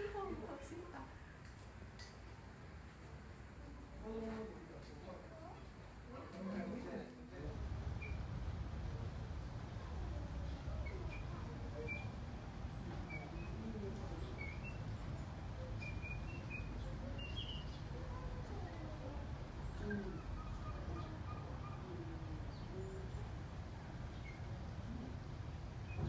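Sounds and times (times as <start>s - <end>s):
soft low gliding calls: 8.0s - 26.0s
high bird chirps: 14.2s - 17.9s.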